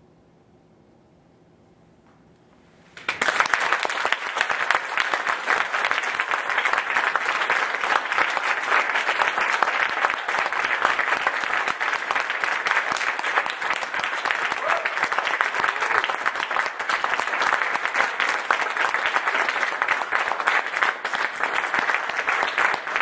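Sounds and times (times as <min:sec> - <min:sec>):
audience applauding: 0:03.0 - 0:23.0.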